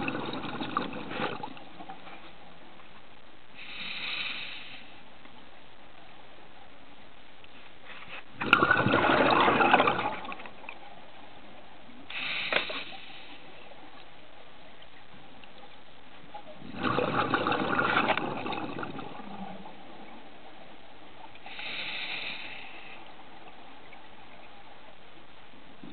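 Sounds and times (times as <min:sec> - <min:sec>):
breath bubbles gurgling underwater: 0:00.0 - 0:01.9, 0:08.4 - 0:10.6, 0:16.6 - 0:20.2
faint underwater hiss: 0:00.0 - 0:25.9.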